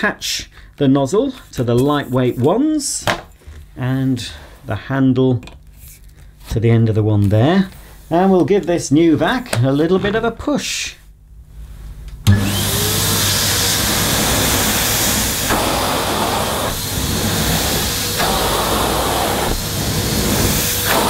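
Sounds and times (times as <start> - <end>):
vacuum cleaner motor running: 12.2 - 21.0
vacuum nozzle pushed over carpet: 12.3 - 21.0.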